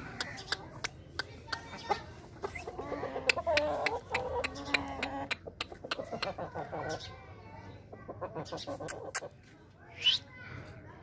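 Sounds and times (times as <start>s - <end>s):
chickens clucking: 0.0s - 10.2s
drawn-out low chicken calls: 1.7s - 7.1s.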